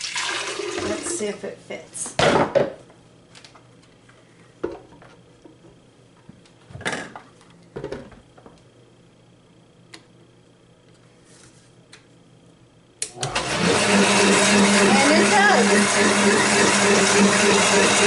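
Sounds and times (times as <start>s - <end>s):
blender motor running: 13.1s - 18.0s.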